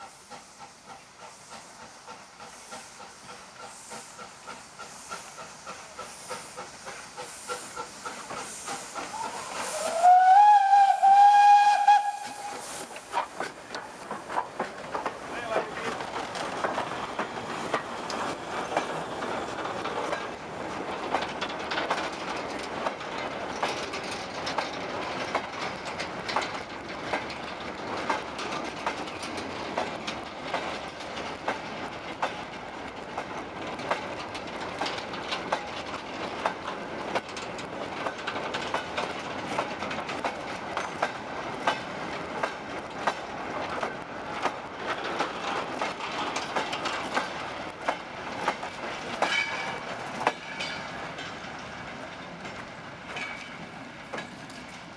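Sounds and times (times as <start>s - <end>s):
wheels clicking over rail joints: 3.2s - 54.9s
freight wagons rumbling and rattling: 12.9s - 53.6s.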